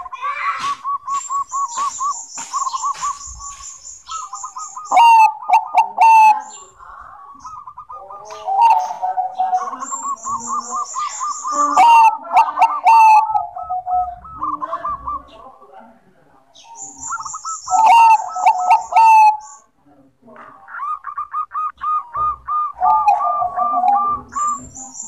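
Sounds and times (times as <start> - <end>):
thin high chirps: 0.0 - 5.2, 9.5 - 12.0
dove cooing: 0.0 - 15.7, 16.6 - 19.7, 20.4 - 25.0.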